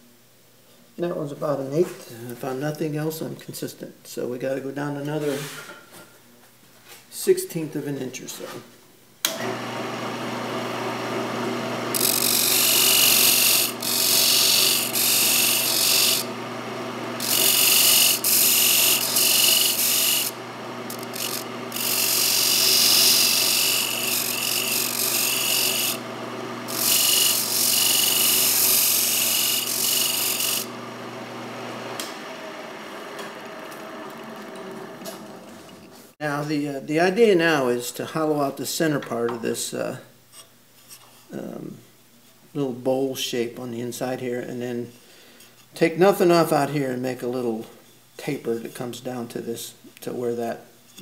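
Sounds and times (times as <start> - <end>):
lathe motor humming: 9.3 - 36.1
tool scraping spinning wood: 9.4 - 36.2.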